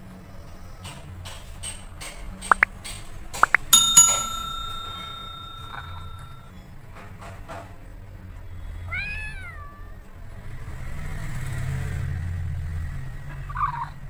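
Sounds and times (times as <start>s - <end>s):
cat meow: 8.9s - 10.0s.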